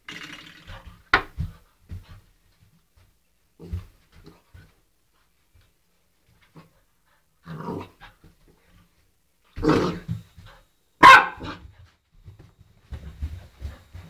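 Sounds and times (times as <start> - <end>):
puppy growling barks: 11.0 - 11.6.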